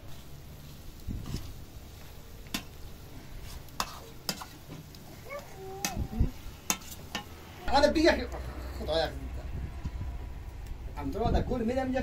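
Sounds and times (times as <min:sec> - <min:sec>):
utensil stirring food in pot: 0:00.0 - 0:07.6.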